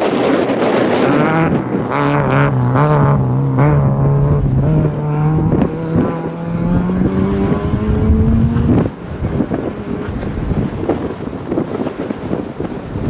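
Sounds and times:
rally car engine accelerating: 1.0 - 10.8.

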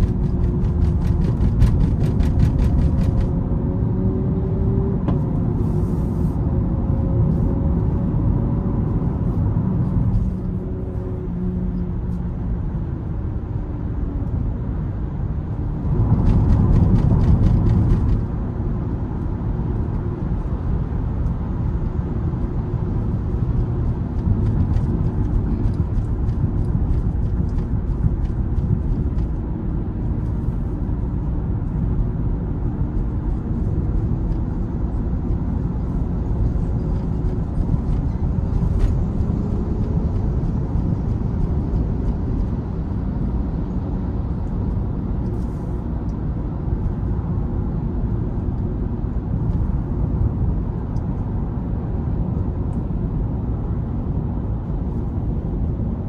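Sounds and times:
tyre and road rumble: 0.0 - 56.0.

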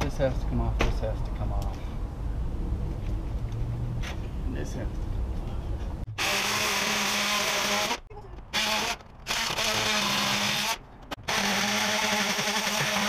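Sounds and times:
power drill whining: 6.2 - 13.0.

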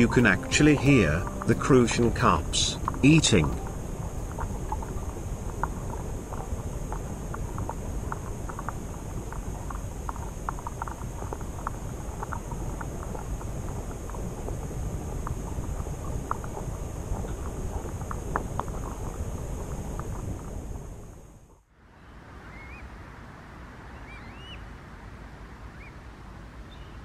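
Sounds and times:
low underwater rumble: 0.0 - 21.5
fish feeding clicks underwater: 2.8 - 20.5.

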